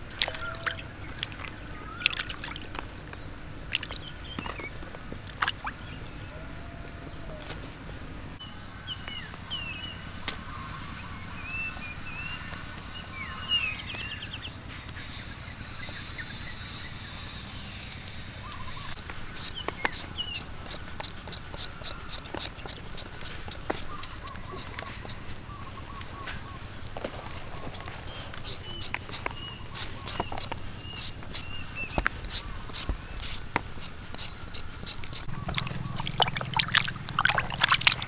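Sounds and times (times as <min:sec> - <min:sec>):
low outdoor rumble: 0:00.0 - 0:21.0, 0:23.3 - 0:38.0
birds chirping: 0:00.0 - 0:38.0
peeler scraping potato: 0:08.5 - 0:25.4, 0:27.6 - 0:35.9.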